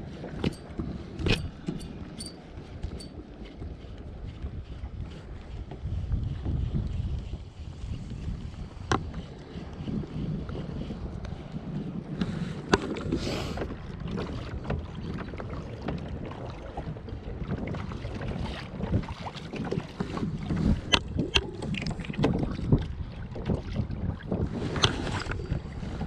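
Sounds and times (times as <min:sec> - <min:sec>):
water slapping against kayak hull: 0:00.0 - 0:26.0
wind buffeting microphone: 0:00.0 - 0:26.0
sharp clicks and knocks: 0:00.4 - 0:03.2.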